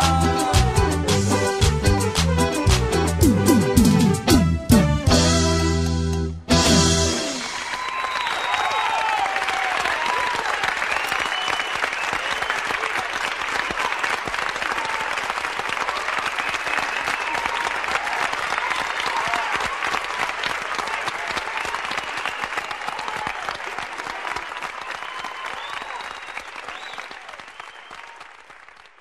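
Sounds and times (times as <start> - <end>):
people calling out: 0.0 - 1.3
audience applauding: 0.0 - 3.0, 7.0 - 29.0
people whistling: 7.8 - 9.0, 10.9 - 12.9, 16.4 - 17.6, 21.8 - 22.9, 24.8 - 28.2.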